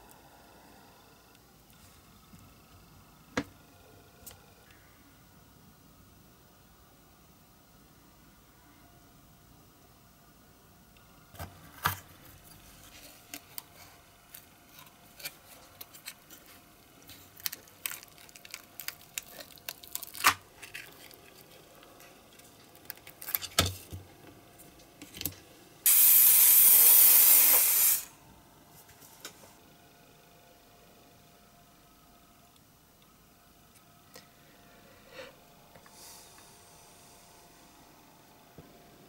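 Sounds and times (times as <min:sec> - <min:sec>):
aerosol can spraying: 0:25.9 - 0:28.1.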